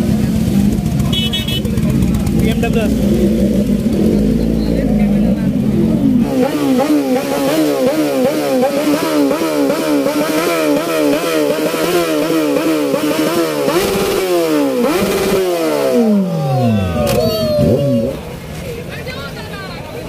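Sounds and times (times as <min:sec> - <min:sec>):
motorcycle engine revving: 0:00.0 - 0:18.4.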